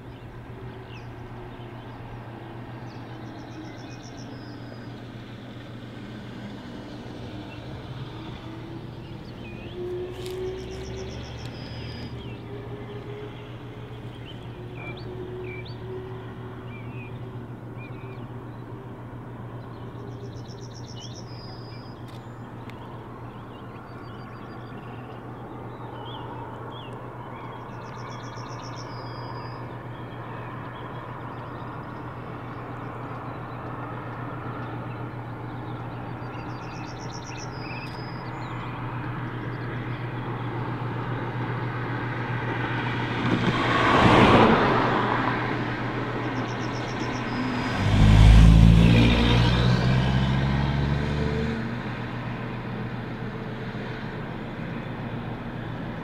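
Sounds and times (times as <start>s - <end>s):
locomotive drone: 0.0s - 56.0s
bird chirping: 8.9s - 18.8s, 19.6s - 33.7s, 34.6s - 40.5s, 46.2s - 47.8s.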